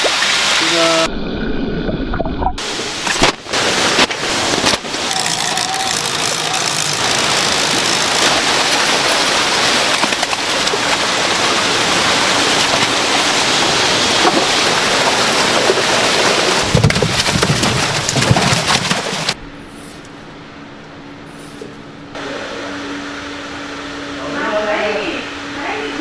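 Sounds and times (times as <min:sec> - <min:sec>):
fish splashing at water surface: 0:02.6 - 0:19.4.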